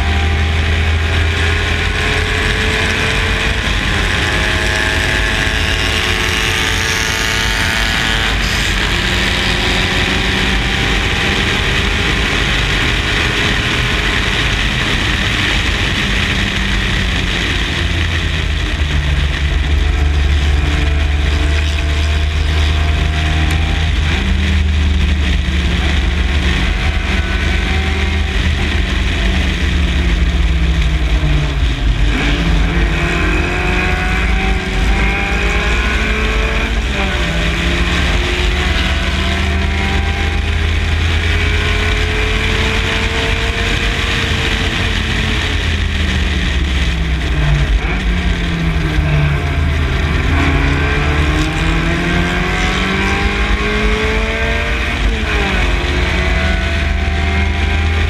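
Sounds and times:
racing car engine revving: 0:00.0 - 0:58.0.

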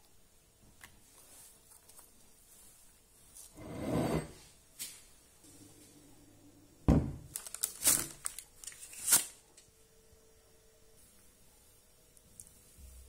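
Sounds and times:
paper rustling: 0:07.3 - 0:09.4.

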